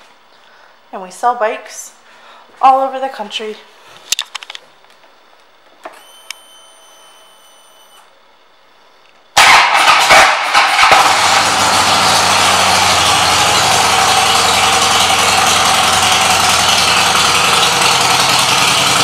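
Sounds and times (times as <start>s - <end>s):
faint high whine: 0.0s - 9.4s
ignition click: 5.9s - 6.4s
motorcycle engine starting and idling: 9.4s - 19.0s.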